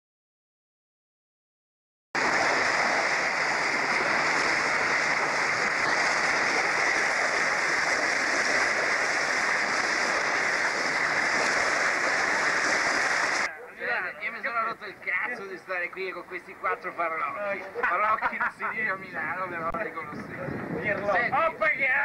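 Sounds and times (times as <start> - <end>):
water spraying and streaming: 2.2 - 13.5.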